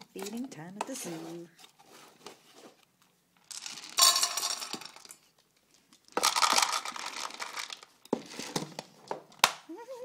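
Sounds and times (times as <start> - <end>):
cat biscuits poured into metal bowl: 3.5 - 5.2, 6.1 - 8.6.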